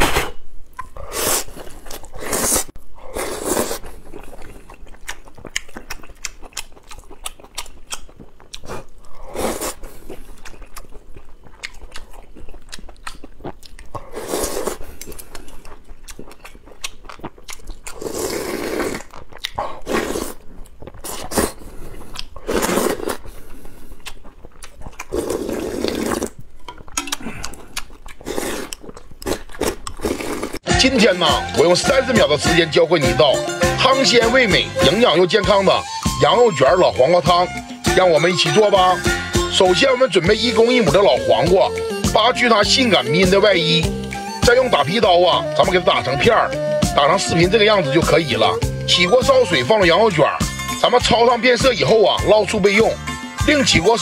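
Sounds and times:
loud slurps: 1.0s - 4.6s, 14.0s - 15.2s, 17.9s - 24.2s, 24.9s - 26.4s, 27.2s - 30.6s
wet chewing and lip smacks: 3.5s - 30.6s, 43.6s - 44.6s.

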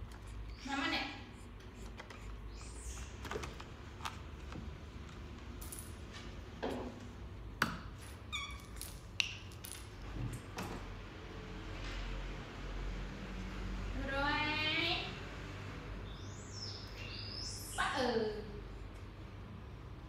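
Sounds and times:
monkey squeak: 8.3s - 8.8s.

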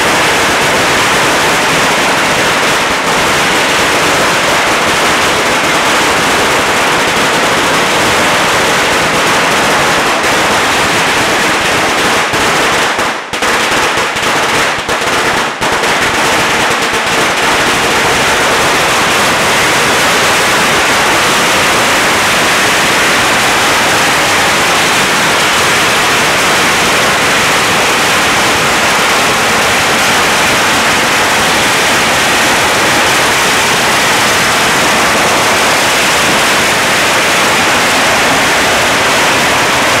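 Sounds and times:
firecrackers crackling: 0.0s - 40.0s.

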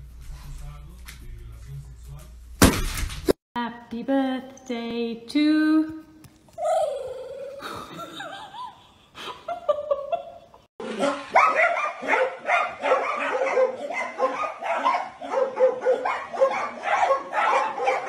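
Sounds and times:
small dogs barking: 10.9s - 18.0s.

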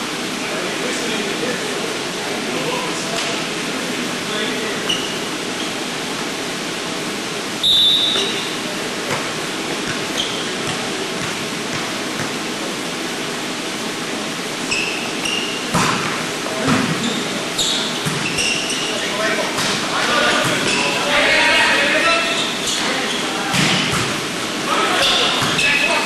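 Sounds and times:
gym hall hiss: 0.0s - 26.0s
referee whistle blast: 7.6s - 8.6s
volleyball hits: 8.0s - 12.5s, 15.4s - 17.1s, 23.5s - 24.3s
players shouting: 19.0s - 23.4s.

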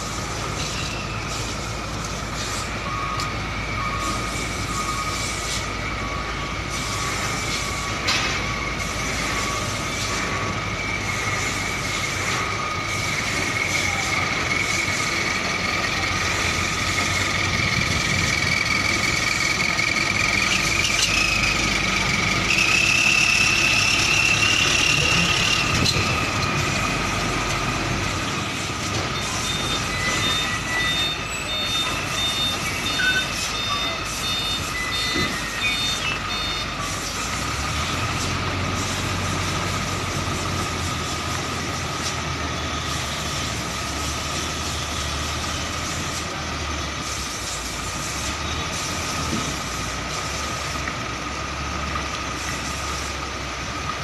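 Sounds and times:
high mechanical whine: 0.0s - 54.0s
truck diesel engine running: 0.0s - 54.0s
high warning beeps: 0.1s - 38.2s.

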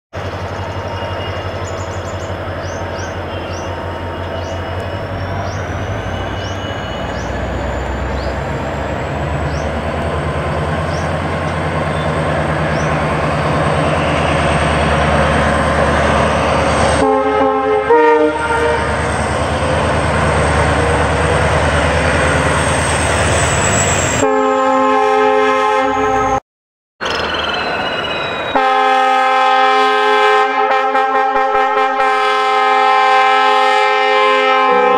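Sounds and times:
train coaches rumbling on rails: 0.1s - 26.4s, 27.0s - 34.9s
multi-note train horn: 16.9s - 19.0s, 24.2s - 26.4s, 28.5s - 34.9s.

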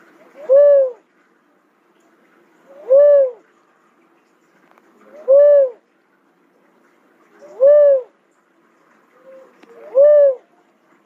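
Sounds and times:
dove calling with whooping notes: 0.2s - 1.1s, 2.7s - 3.5s, 5.0s - 5.8s, 7.4s - 8.2s, 9.2s - 10.6s.

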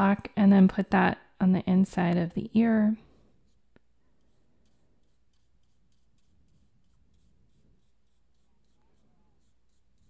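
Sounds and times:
brush stroking paint on paper: 3.1s - 10.0s.

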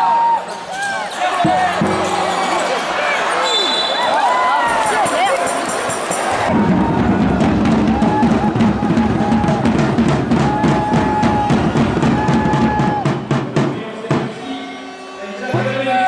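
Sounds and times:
drum beat: 1.4s - 2.6s, 4.9s - 14.4s.

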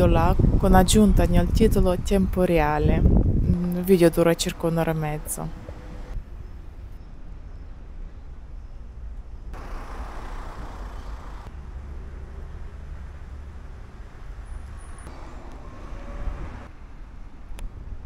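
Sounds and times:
low traffic rumble: 0.0s - 18.0s
cars passing: 4.1s - 6.8s, 9.5s - 18.0s.

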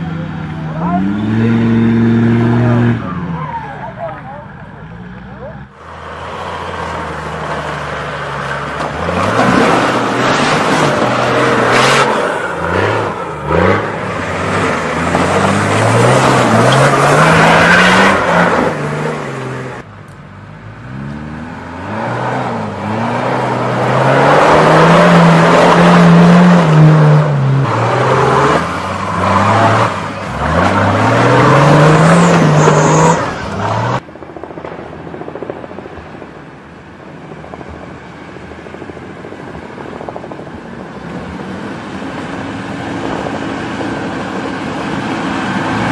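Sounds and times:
tyres churning ground: 0.0s - 45.9s
suv engine revving: 4.9s - 19.8s, 20.7s - 34.0s.

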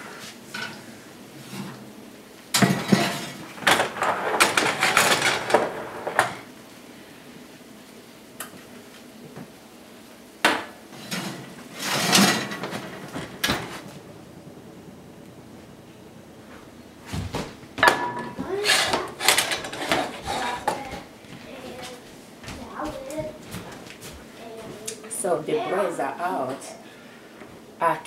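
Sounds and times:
metal cookware clattering: 2.6s - 6.3s, 11.0s - 13.7s, 17.8s - 20.8s.

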